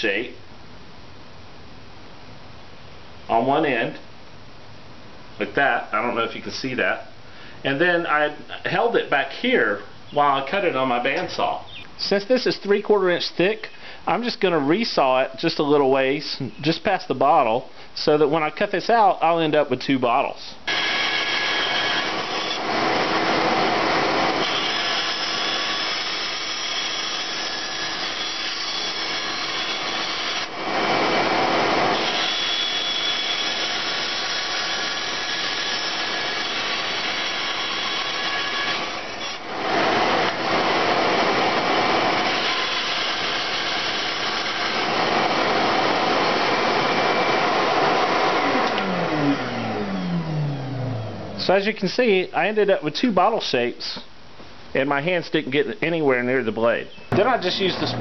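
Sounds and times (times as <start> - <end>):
bandsaw cutting through wood: 20.7 - 50.4.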